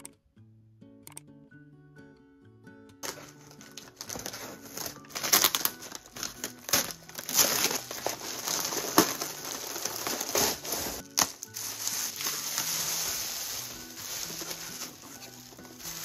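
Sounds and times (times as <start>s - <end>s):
soft background music: 0.0s - 16.0s
bubble wrap crinkling: 3.0s - 16.0s
paper crumpling and ripping: 3.0s - 16.0s.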